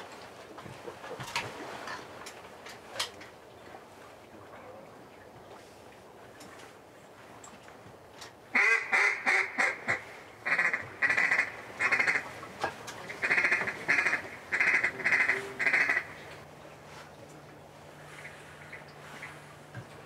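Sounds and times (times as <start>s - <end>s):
duck quacking: 8.6s - 12.3s, 13.2s - 16.2s.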